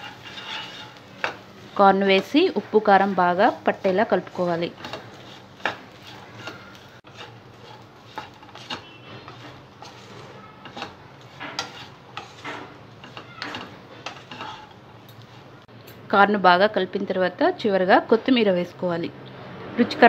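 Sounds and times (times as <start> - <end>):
spatula scraping frying pan: 0.0 - 15.7.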